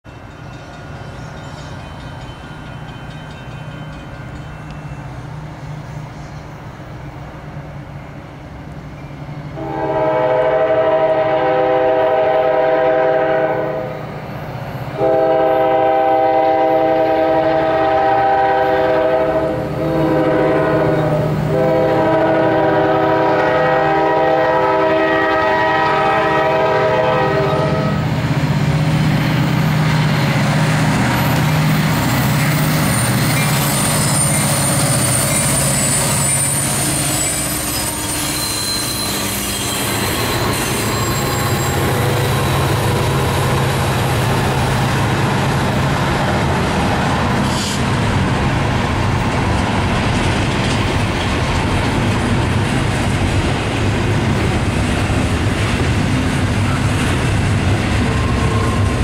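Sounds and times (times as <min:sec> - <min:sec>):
diesel locomotive engines rumbling: 0:00.0 - 0:59.0
locomotive air horn blasts: 0:09.6 - 0:14.0, 0:15.0 - 0:28.1, 0:37.0 - 0:39.3.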